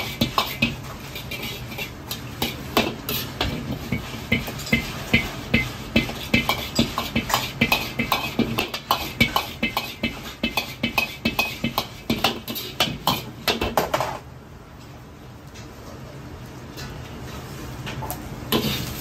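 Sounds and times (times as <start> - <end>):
metal ladle scraping wok: 0.0 - 13.6, 18.5 - 19.0.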